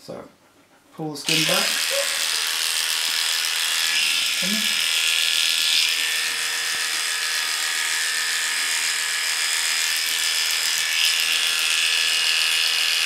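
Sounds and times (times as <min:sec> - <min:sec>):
electric clippers buzzing: 0:01.3 - 0:13.0.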